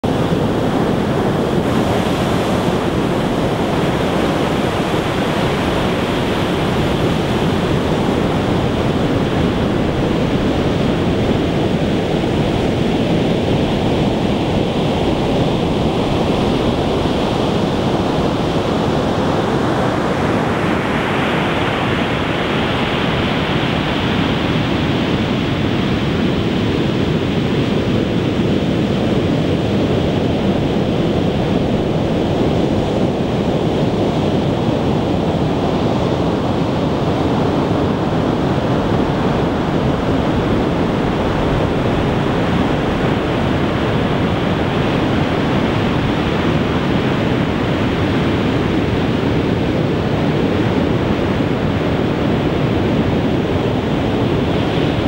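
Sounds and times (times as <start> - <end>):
storm waves crashing: 38.2 - 55.0.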